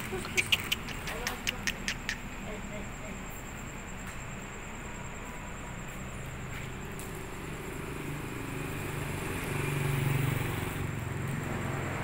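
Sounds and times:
vehicle engine passing: 4.7s - 12.0s.

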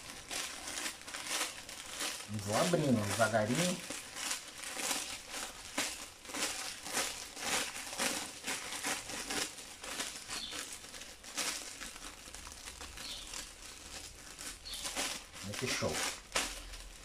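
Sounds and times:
plastic film crinkling: 0.0s - 17.0s.

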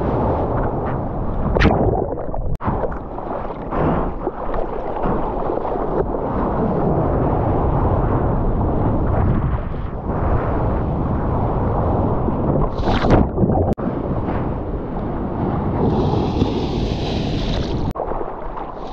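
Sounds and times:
muffled water rush: 0.0s - 18.9s
water splashing: 1.4s - 6.4s, 15.8s - 18.9s.

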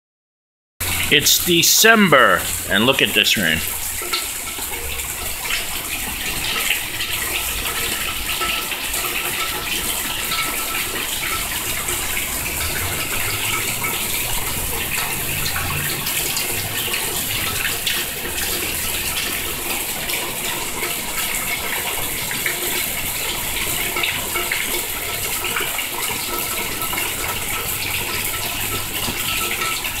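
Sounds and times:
heavy rain falling: 0.8s - 30.0s.

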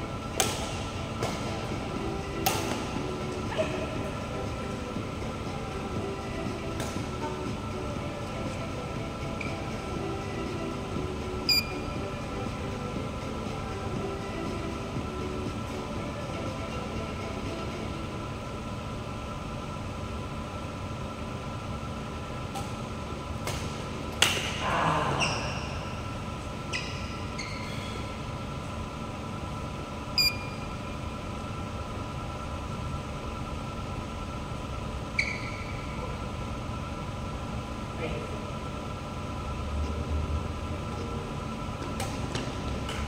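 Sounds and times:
air handling hum: 0.0s - 43.0s
racket hitting shuttlecock: 0.4s - 1.5s, 2.4s - 3.9s, 23.4s - 24.6s
shoes squeaking on court: 25.2s - 25.8s, 26.6s - 28.0s, 35.1s - 35.9s.

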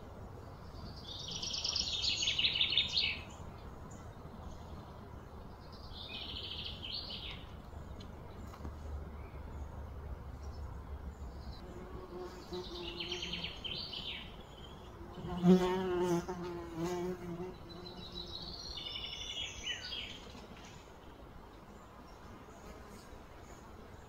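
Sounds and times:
flying insect buzzing: 15.0s - 18.4s.

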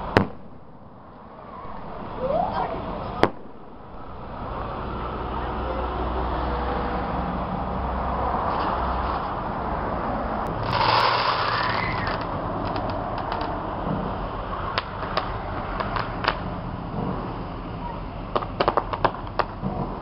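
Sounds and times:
fireworks popping: 0.0s - 4.8s, 10.5s - 17.4s, 18.3s - 20.0s
fireworks crackling: 0.0s - 5.9s, 10.5s - 20.0s
background rumble: 0.0s - 6.6s
rushing swell: 0.0s - 7.4s.

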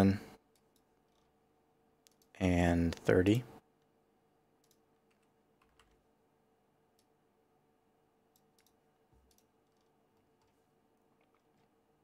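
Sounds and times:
faint computer mouse clicks: 4.6s - 5.9s, 8.3s - 10.6s.

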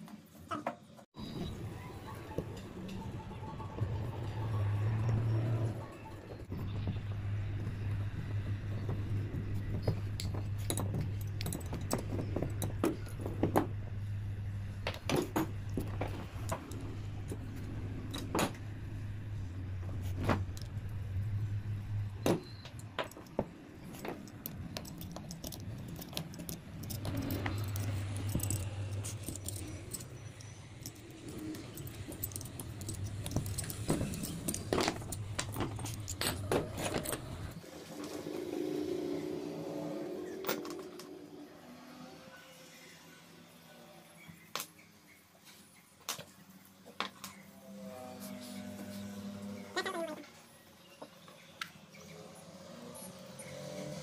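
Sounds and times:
metal tools clicking and clinking: 8.8s - 14.0s, 14.9s - 18.7s, 22.2s - 37.6s.

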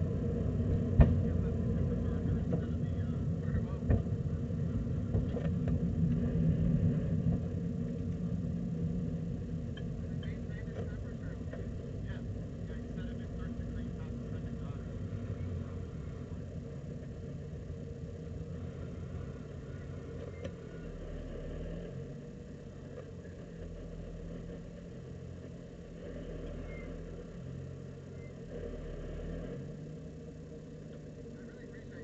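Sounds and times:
car engine running at low revs: 0.0s - 32.0s.

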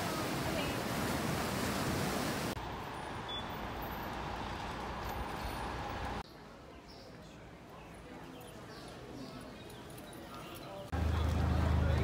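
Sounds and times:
road traffic rumble: 0.0s - 6.3s, 10.9s - 12.0s.

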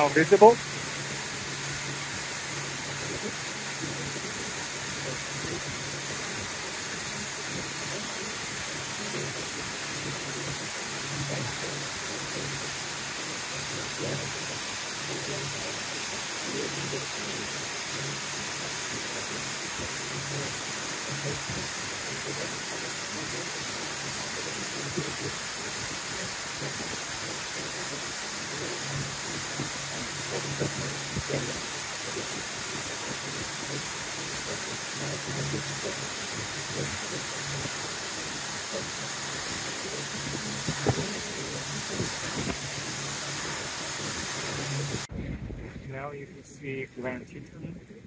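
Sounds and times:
boat motor humming: 0.0s - 45.6s
wind and water rushing: 0.0s - 46.1s.

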